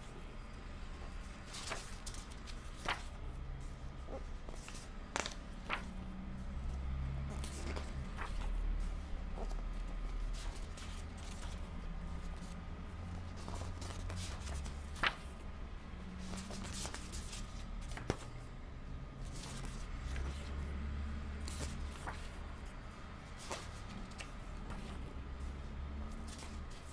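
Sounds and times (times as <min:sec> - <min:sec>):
book pages rustling: 0:01.0 - 0:18.4, 0:19.2 - 0:26.9
page snapping: 0:04.5 - 0:05.9.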